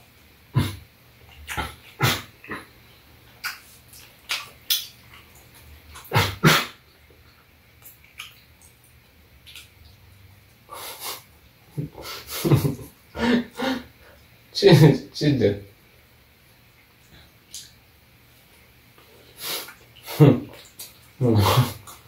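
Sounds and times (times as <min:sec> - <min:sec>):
eating mouth noises: 0:00.6 - 0:09.8, 0:19.0 - 0:22.0.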